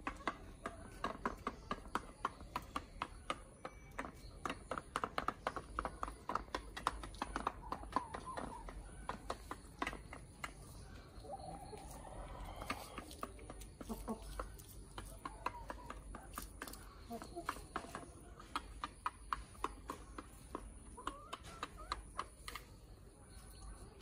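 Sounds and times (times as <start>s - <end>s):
beaks tapping feeder dish: 0.0s - 11.1s
hen clucking: 5.7s - 24.0s.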